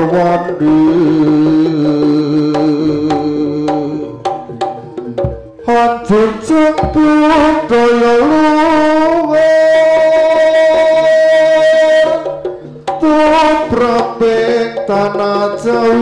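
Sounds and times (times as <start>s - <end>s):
hand drum strokes: 2.6s - 7.9s
deep thumps: 5.2s - 7.6s.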